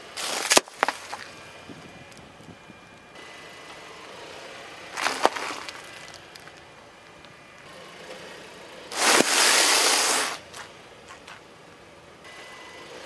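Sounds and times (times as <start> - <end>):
tyre crushing wrapper crackle: 0.2 - 1.3, 5.0 - 6.6, 8.9 - 10.5
cornflakes bag crunching: 5.0 - 6.6, 8.9 - 10.4.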